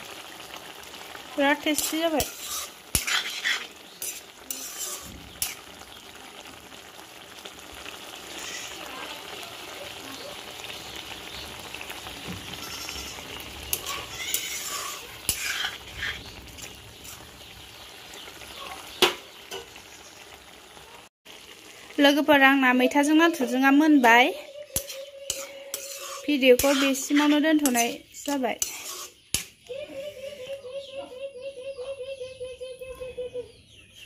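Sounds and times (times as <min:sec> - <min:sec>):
food sizzling in a pan: 0:00.0 - 0:30.0
metal spatula clinking on pan: 0:13.7 - 0:15.9, 0:24.8 - 0:29.6.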